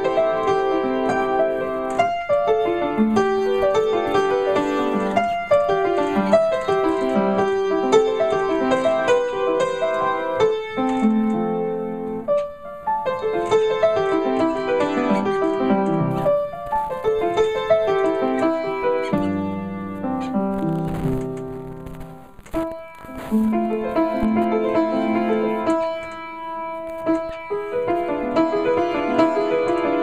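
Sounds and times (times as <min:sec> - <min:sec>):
solo piano: 0:00.0 - 0:30.0.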